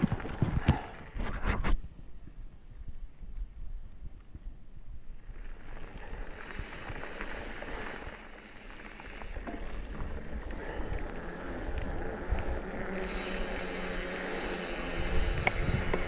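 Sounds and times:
bike clicks: 3.4 - 16.0
wind rushing over microphone: 14.7 - 16.0.

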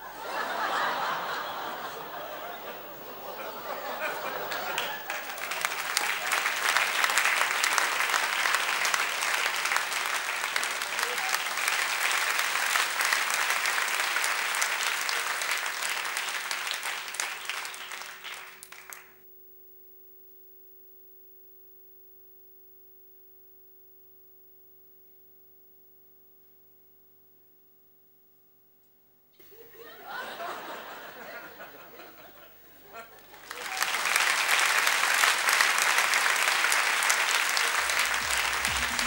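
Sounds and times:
audience applauding: 0.0 - 19.2, 33.2 - 39.0
faint steady hum: 0.0 - 34.1, 34.7 - 39.0.

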